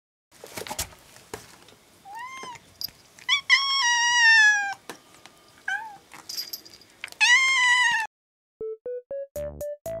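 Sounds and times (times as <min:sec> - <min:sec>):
cat meowing: 0:02.1 - 0:02.6, 0:03.3 - 0:04.8, 0:05.7 - 0:06.0, 0:07.2 - 0:08.1
cat chirping: 0:02.1 - 0:04.8.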